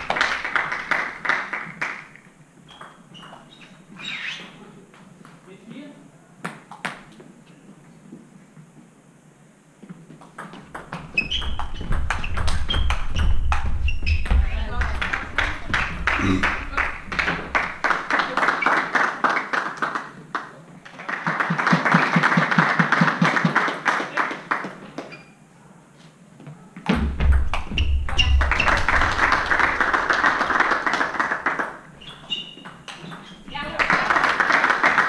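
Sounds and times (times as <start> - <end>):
spectators clapping: 0.0 - 2.3, 11.6 - 13.9, 14.5 - 25.1, 27.5 - 31.9, 32.8 - 35.0
low thumps: 11.5 - 17.6, 26.9 - 29.3.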